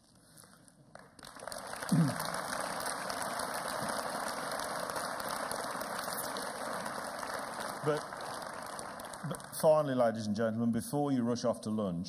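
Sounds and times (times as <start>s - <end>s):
audience applauding: 0.9s - 10.4s.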